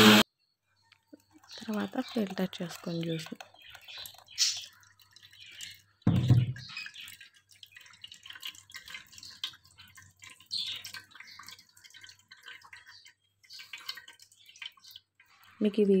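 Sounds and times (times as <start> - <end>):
juice dripping and trickling: 0.8 - 15.8
juice pouring into strainer: 1.2 - 15.5
dull thump: 6.1 - 6.6.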